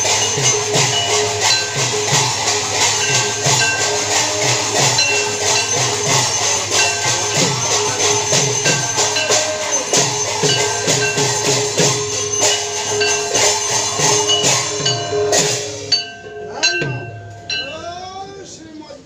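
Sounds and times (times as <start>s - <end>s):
barrel drum played fast: 0.0s - 18.0s
ringing metal percussion: 0.0s - 18.8s.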